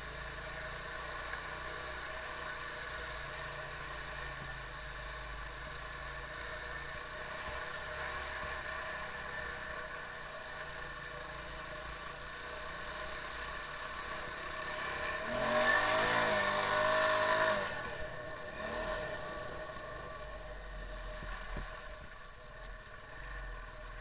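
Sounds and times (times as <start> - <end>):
quad bike engine running: 0.0 - 24.0
quad bike engine revving: 12.4 - 20.6.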